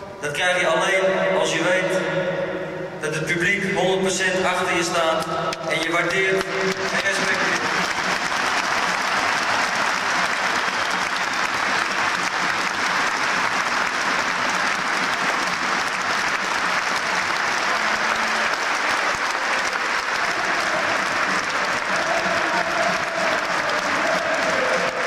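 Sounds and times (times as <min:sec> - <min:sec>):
crowd applauding: 0:05.2 - 0:25.0.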